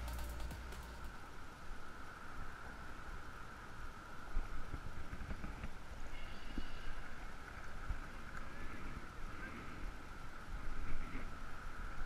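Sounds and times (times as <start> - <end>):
steady high hum: 0.0 - 2.3.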